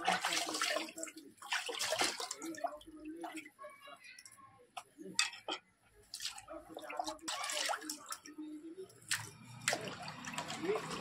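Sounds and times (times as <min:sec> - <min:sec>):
water splashing in a vessel: 0:00.0 - 0:03.5, 0:06.1 - 0:11.0
small knocks and clatters: 0:04.2 - 0:05.7.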